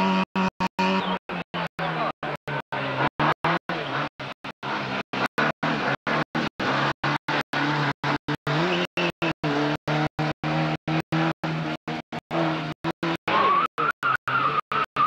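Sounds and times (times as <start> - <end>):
rally car engine revving: 0.0 - 15.0
tyre squeal: 13.3 - 15.0.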